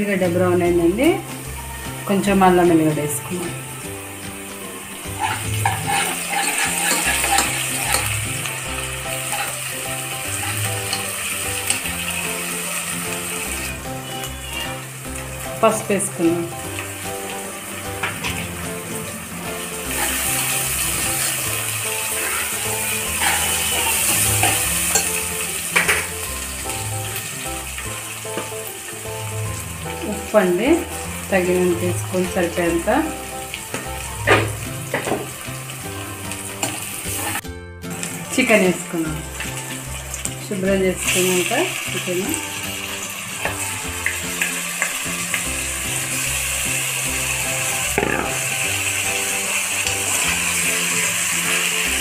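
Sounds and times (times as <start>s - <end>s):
food sizzling in hot oil: 0.0s - 52.0s
steel spatula scraping pan: 5.0s - 14.8s, 19.8s - 21.3s, 21.9s - 26.2s
ladle clicking on pot: 5.2s - 8.2s.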